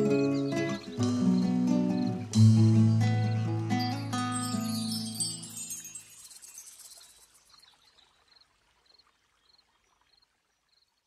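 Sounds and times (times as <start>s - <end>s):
cricket chirps: 4.2s - 11.0s.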